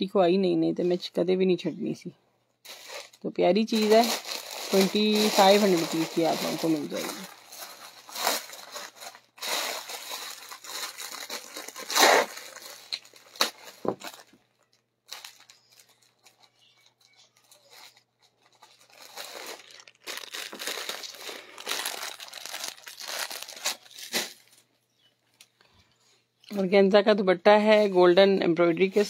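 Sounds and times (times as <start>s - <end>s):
plastic packaging crinkling: 2.7s - 24.7s.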